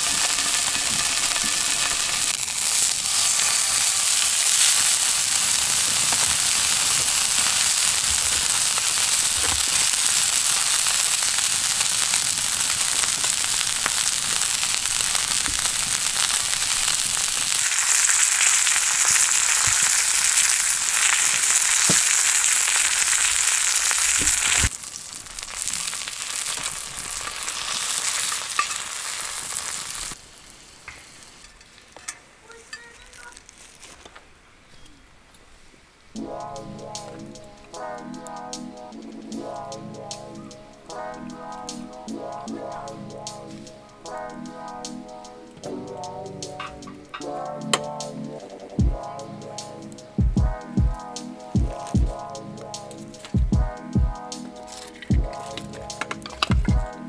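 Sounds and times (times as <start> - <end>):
steak sizzling in a frying pan: 0.0 - 30.4.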